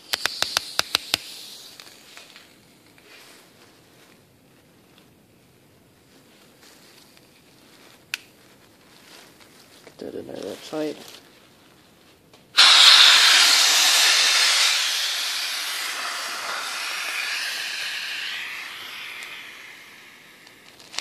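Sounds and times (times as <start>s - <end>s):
gas cartridge hissing: 0.0s - 2.0s, 12.6s - 21.0s.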